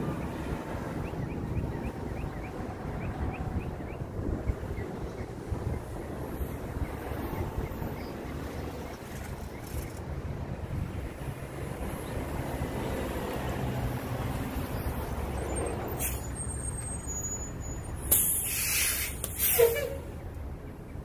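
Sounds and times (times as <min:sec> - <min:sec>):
bus engine rumbling: 0:00.0 - 0:21.0
air brakes hissing: 0:16.0 - 0:20.1.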